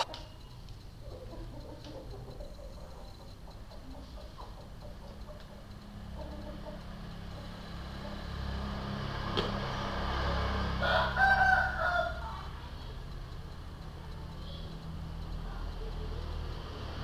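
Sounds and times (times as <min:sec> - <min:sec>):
steady low hum: 0:00.0 - 0:17.0
rooster crowing: 0:10.5 - 0:12.5.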